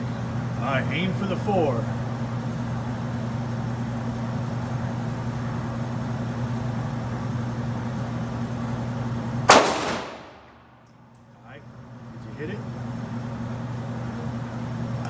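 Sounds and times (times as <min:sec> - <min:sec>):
steady low hum: 0:00.0 - 0:15.0
pistol shot echoing: 0:09.5 - 0:10.7.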